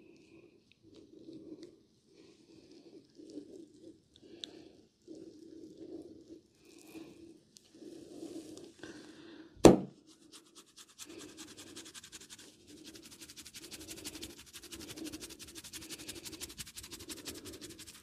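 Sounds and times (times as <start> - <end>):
fingernails scratching scalp: 10.1 - 18.0.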